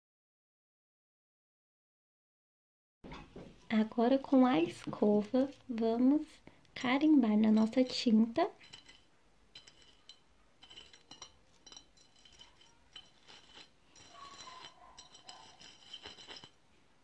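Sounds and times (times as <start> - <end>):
brush scraping on glass plate: 7.3 - 16.6
light glass clinks: 8.6 - 16.6.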